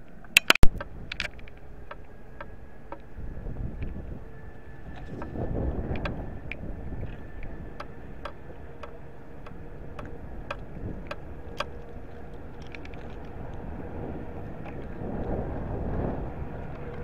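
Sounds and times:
wind rumbling on microphone: 0.0s - 17.0s
sharp ticks: 0.4s - 3.1s, 7.8s - 11.8s.

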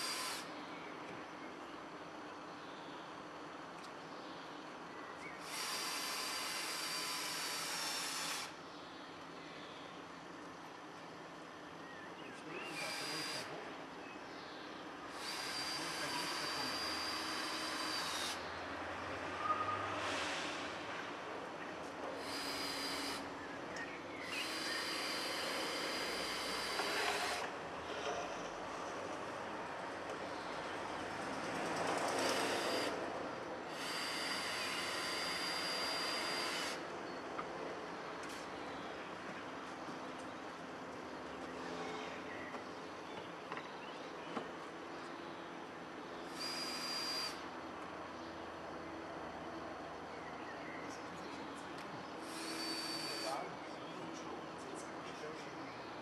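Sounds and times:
power tool whining: 5.4s - 8.5s, 15.1s - 18.5s, 22.2s - 23.3s, 24.2s - 27.5s, 32.0s - 33.0s, 33.7s - 36.8s, 46.3s - 47.4s, 52.2s - 53.4s.

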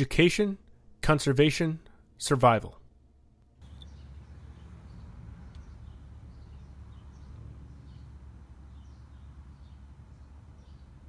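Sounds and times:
high bird chirps: 3.6s - 11.0s.

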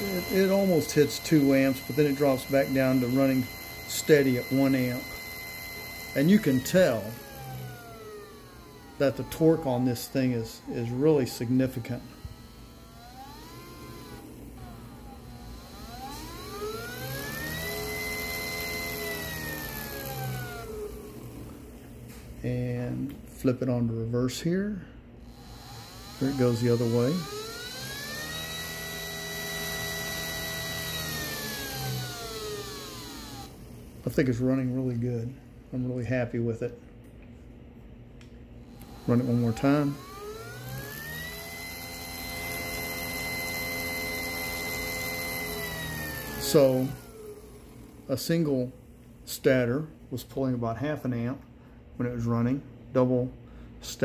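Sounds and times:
electric motor whining: 0.0s - 22.2s, 25.2s - 35.0s, 38.6s - 48.7s.

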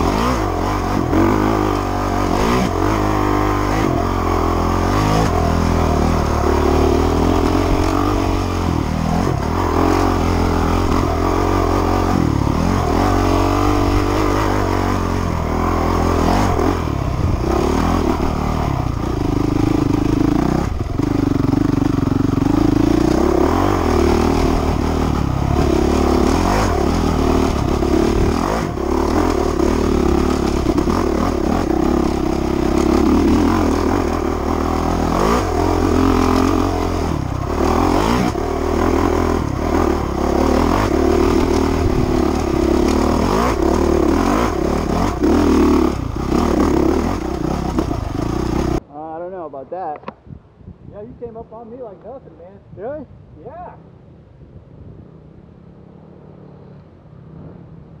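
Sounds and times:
bike rattling over rough ground: 0.0s - 48.8s
dirt bike engine revving: 0.0s - 48.8s.

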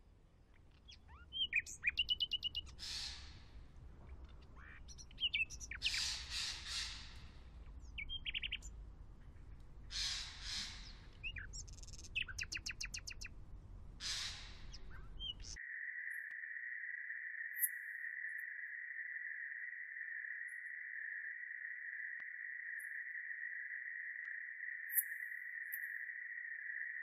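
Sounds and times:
small birds chirping: 0.4s - 16.7s.

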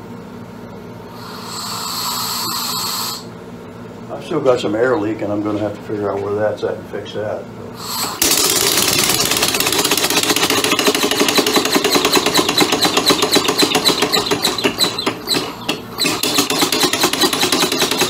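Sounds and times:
compressed-air engine exhaust puffing: 1.0s - 3.4s, 7.7s - 18.0s
steady air hiss: 1.1s - 3.4s, 7.7s - 8.2s.

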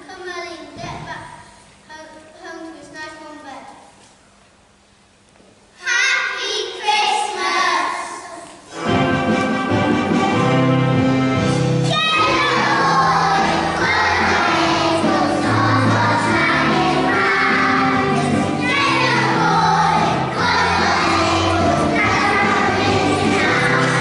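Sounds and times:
instrumental backing music: 8.7s - 24.0s
children singing: 12.0s - 24.0s.

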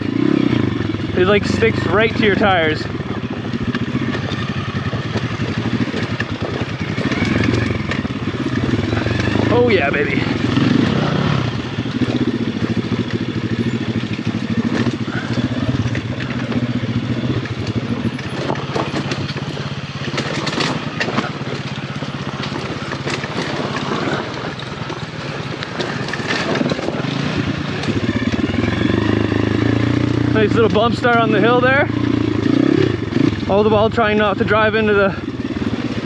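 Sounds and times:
dirt bike engine running: 0.0s - 36.0s
clatter of rocks: 14.2s - 28.0s.

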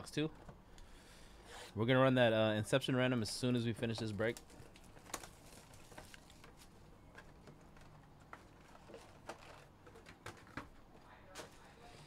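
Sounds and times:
foil packs rustling: 3.2s - 12.0s.

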